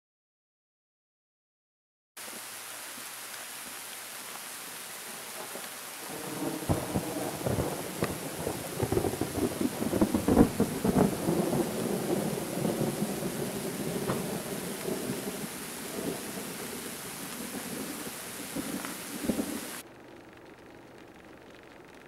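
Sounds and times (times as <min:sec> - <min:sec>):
steady background hiss: 0:02.2 - 0:22.0
thunder rumbling and crackling: 0:05.4 - 0:22.0.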